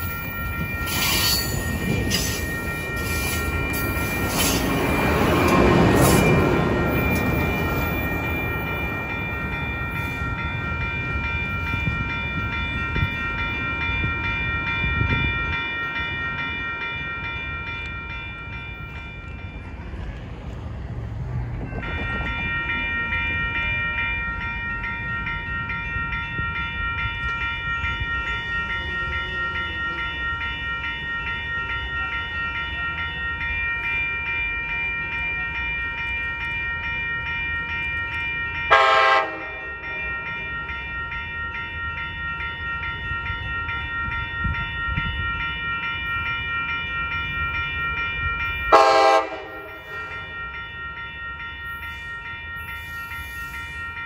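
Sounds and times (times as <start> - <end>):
train bell ringing: 0.0 - 54.0
train rumble: 0.0 - 54.0
train horn blasts: 38.7 - 39.6, 48.7 - 49.8.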